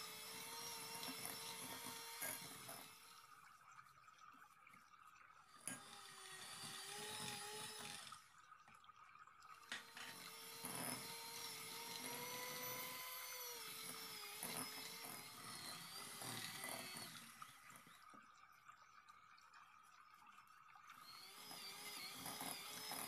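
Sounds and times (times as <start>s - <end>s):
electric hand mixer whine: 0.0s - 3.3s, 5.7s - 8.2s, 9.7s - 18.0s, 21.0s - 23.0s.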